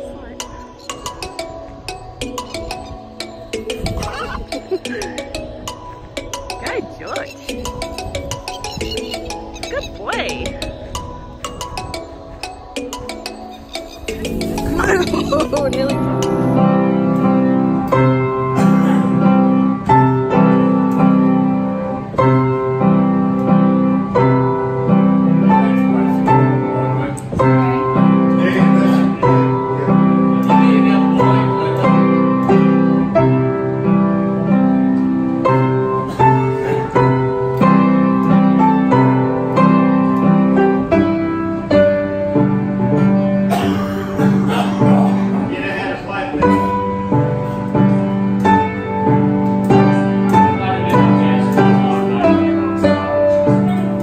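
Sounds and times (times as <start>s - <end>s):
upright piano playing: 0.0s - 54.0s.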